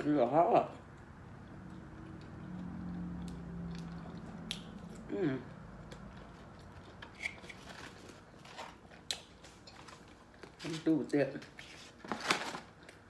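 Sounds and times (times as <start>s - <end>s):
wet mouth smacks: 3.2s - 5.1s
woman humming: 5.1s - 5.5s.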